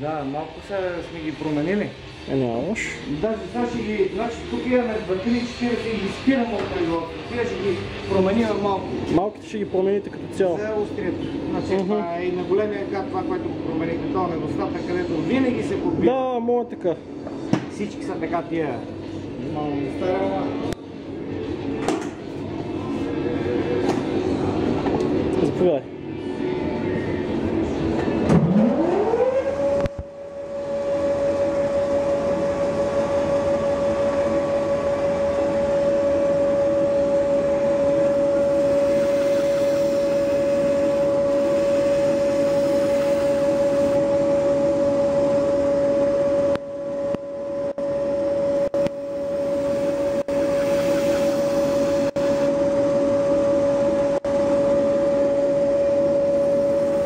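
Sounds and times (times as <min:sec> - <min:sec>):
electric motor whining: 0:36.6 - 0:44.0, 0:48.8 - 0:52.5.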